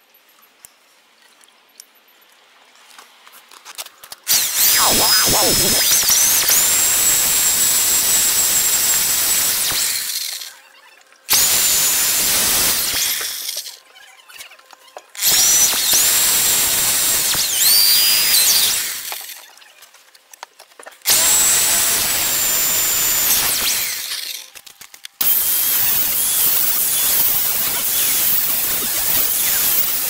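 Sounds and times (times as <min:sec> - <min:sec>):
electric drill boring into wood: 0:04.3 - 0:10.6, 0:11.3 - 0:13.8, 0:15.2 - 0:19.4, 0:21.1 - 0:24.6, 0:25.2 - 0:30.0.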